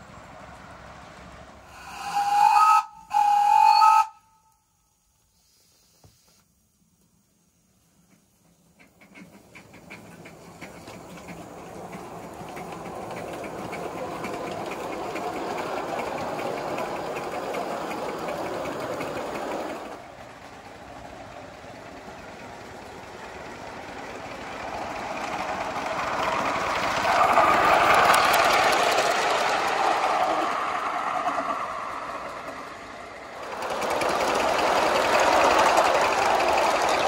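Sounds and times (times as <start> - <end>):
steam locomotive chuffing: 0.0 - 4.3, 8.0 - 37.0
train running on track: 0.0 - 4.8, 6.8 - 37.0.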